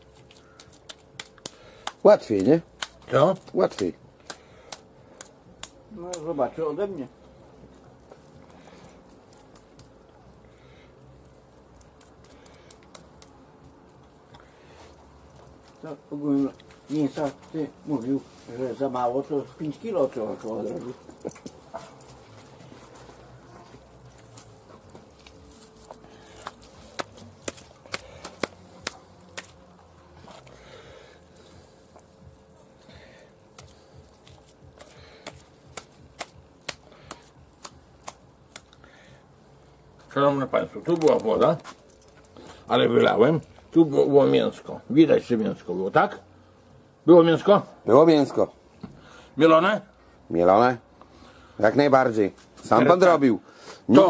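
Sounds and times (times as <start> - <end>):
hands patting meat: 0.1 - 6.3, 24.2 - 30.5, 33.5 - 38.8.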